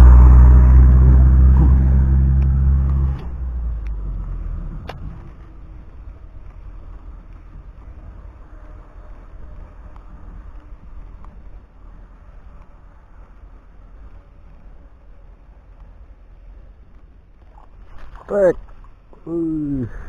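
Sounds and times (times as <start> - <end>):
vehicle engine passing by: 0.0 - 11.2
faint outdoor background: 0.0 - 20.0.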